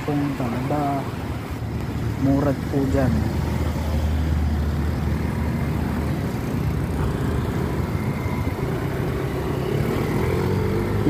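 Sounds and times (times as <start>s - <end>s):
road traffic: 0.0s - 11.0s
scooter engines rumbling: 0.0s - 11.0s.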